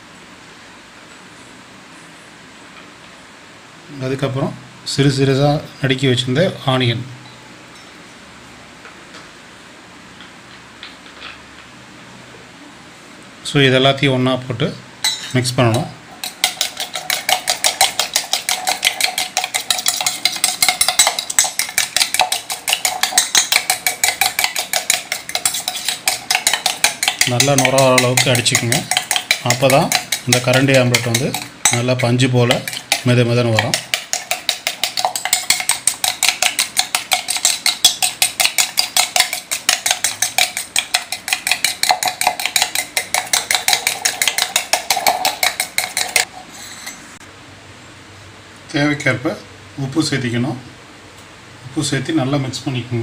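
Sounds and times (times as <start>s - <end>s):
spoon clinking in steel bowl: 15.0s - 47.0s.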